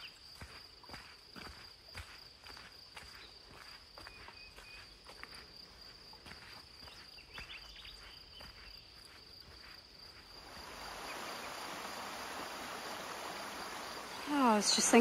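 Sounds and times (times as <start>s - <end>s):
footsteps on leafy dirt trail: 0.0s - 12.0s
high insect drone: 0.0s - 15.0s
small waterfall rushing: 10.4s - 15.0s.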